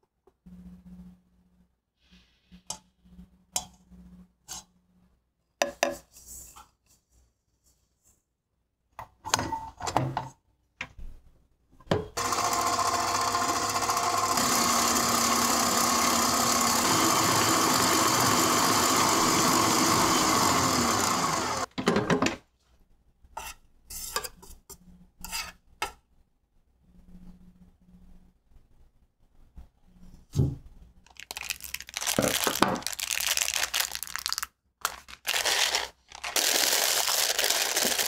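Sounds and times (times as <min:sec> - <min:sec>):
stand mixer motor whine: 0:12.2 - 0:21.7.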